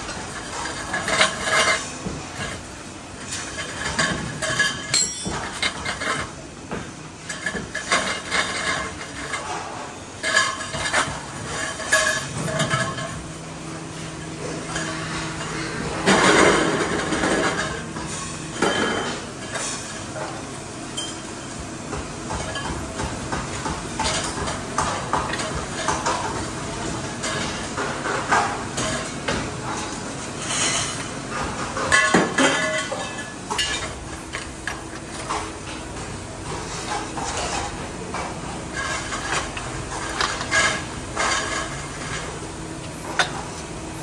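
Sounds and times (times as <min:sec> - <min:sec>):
metal parts clanking: 0:03.4 - 0:06.3.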